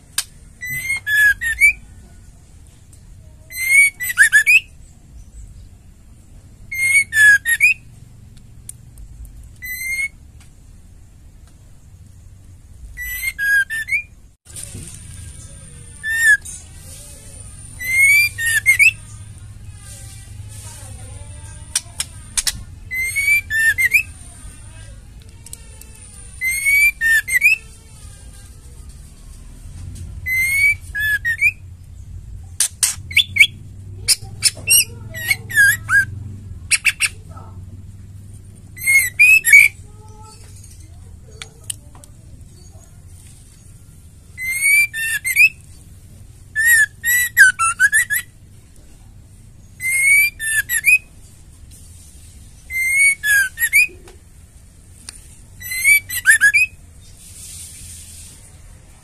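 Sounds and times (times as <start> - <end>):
songbird whistling song: 0.1 - 2.1, 3.3 - 5.7, 6.7 - 7.9, 9.5 - 10.2, 12.8 - 24.8, 26.2 - 27.8, 30.2 - 32.2, 32.8 - 37.5, 38.7 - 41.8, 42.5 - 45.8, 46.4 - 48.4, 49.6 - 51.2, 52.6 - 54.1, 55.6 - 57.7.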